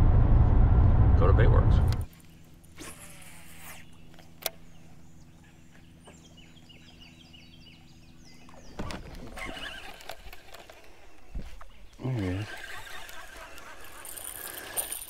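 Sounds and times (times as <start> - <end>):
steady low hum: 0.0 - 9.4
bird chirping: 3.1 - 14.5.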